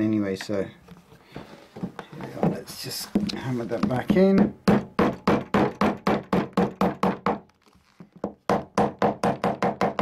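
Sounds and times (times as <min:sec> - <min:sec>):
small hammer tapping shoe heel: 0:01.4 - 0:05.9.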